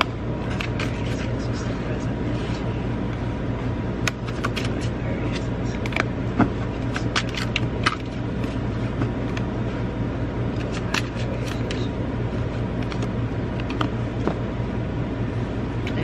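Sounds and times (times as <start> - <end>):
cards snapping and clicking: 0.0 - 1.3, 4.0 - 6.1, 6.8 - 8.6, 10.5 - 11.8, 12.8 - 14.0
low hum: 0.0 - 16.0.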